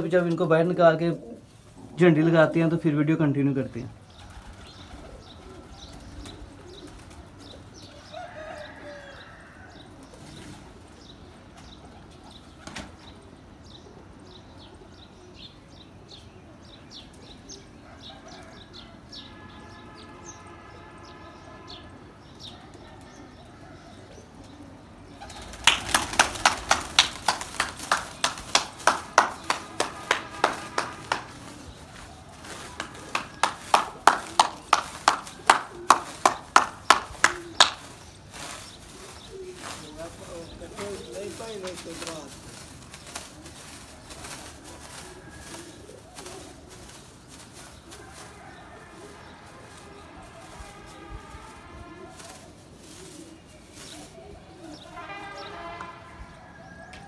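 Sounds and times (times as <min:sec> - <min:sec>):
pigeons cooing: 0:00.0 - 0:02.8, 0:03.9 - 0:19.1, 0:21.7 - 0:51.5, 0:52.2 - 0:55.7
wings fluttering: 0:04.1 - 0:13.2, 0:25.1 - 0:56.0
sharp claps: 0:25.6 - 0:31.6, 0:32.6 - 0:37.9.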